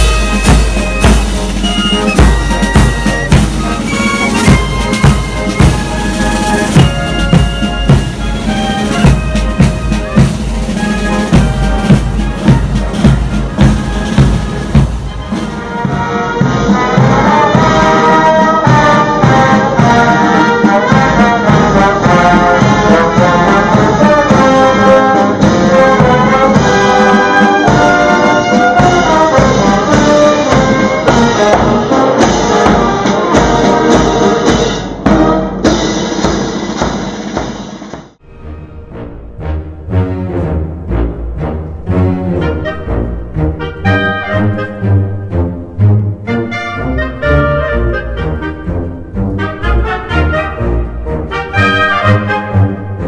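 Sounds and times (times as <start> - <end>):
military band playing a march: 0.0 - 53.0
quieter music: 38.2 - 53.0.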